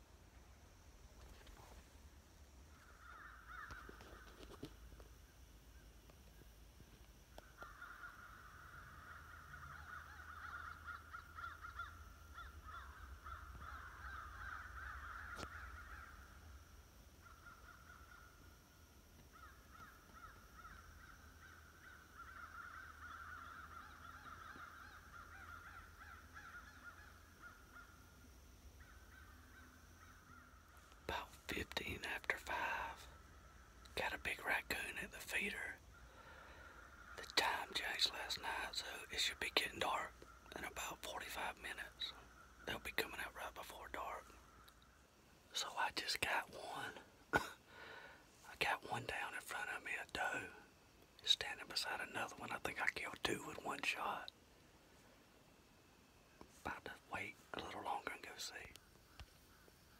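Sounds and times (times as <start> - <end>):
faint animal calling: 2.7 - 4.7, 7.4 - 42.9.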